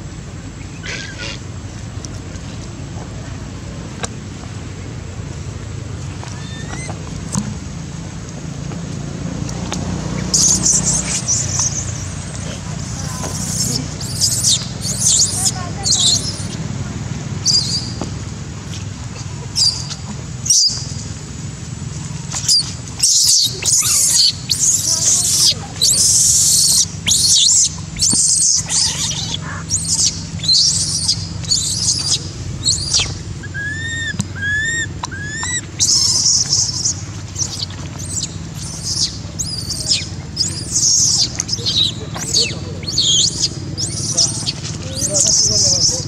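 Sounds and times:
baby monkey screaming: 0:06.4 - 0:06.9, 0:10.3 - 0:16.6, 0:17.4 - 0:18.0, 0:19.6 - 0:20.8, 0:22.4 - 0:46.0.

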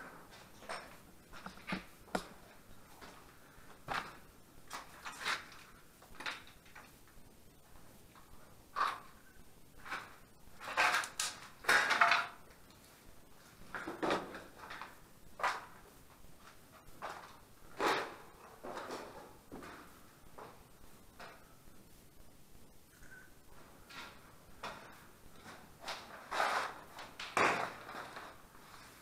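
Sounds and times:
knocks scrapes and crunches: 0:25.8 - 0:29.0.

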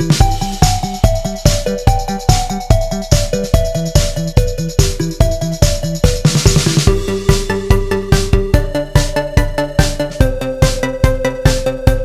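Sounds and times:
drum machine beat: 0:00.0 - 0:12.0.

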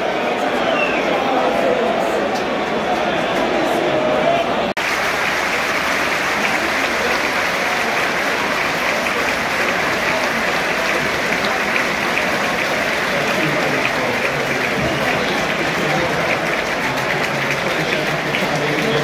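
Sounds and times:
crowd clapping: 0:04.8 - 0:19.0.

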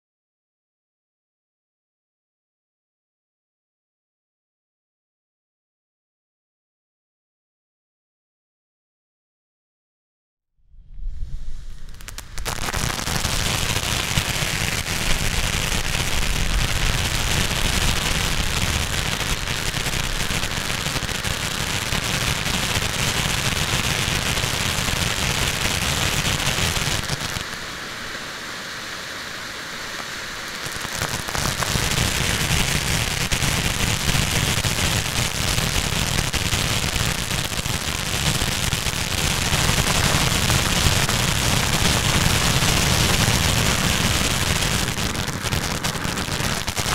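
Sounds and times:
fireworks fountain hissing: 0:10.9 - 0:46.9.

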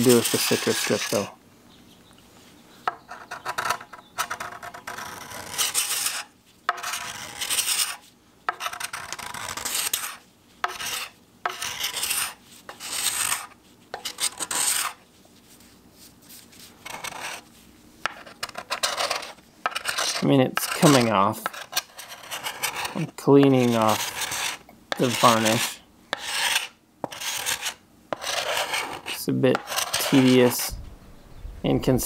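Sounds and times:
scraper rasping on wood: 0:03.1 - 0:15.0, 0:18.1 - 0:30.7.

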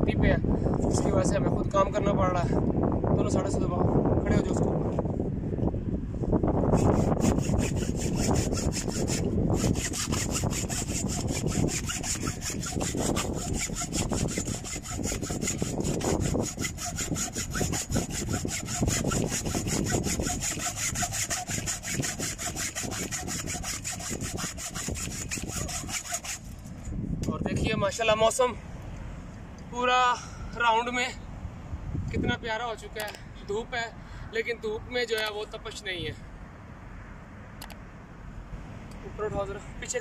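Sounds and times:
hand saw cutting cable: 0:06.7 - 0:26.9.

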